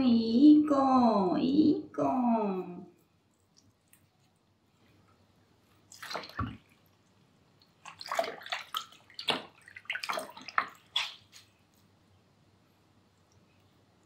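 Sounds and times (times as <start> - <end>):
water splashing in a sink: 5.8 - 11.6.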